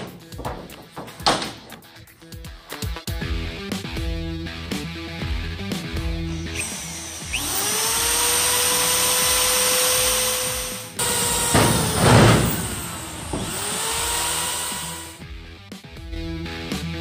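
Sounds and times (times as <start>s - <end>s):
drill bit grinding through metal: 6.3s - 15.2s
drill motor whining: 6.3s - 15.2s.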